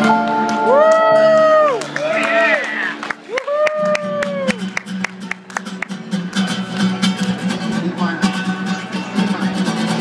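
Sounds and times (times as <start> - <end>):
live band music: 0.0 - 3.2
strummed acoustic guitar: 4.4 - 10.0.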